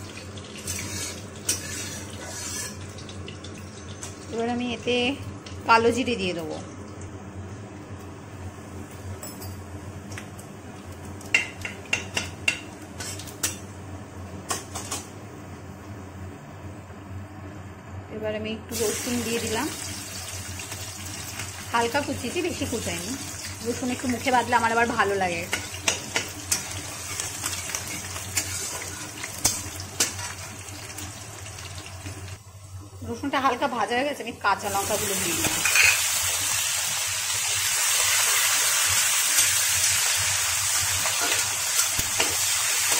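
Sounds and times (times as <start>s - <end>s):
garlic sizzling in oil: 0.0s - 6.6s, 18.7s - 42.9s
metal spatula scraping pan: 0.7s - 2.8s, 25.5s - 30.5s.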